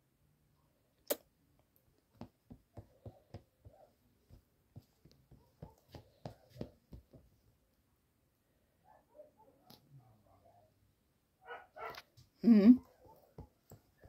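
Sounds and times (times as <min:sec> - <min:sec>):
soft irregular clicks and taps: 0:01.0 - 0:07.8, 0:12.0 - 0:14.0.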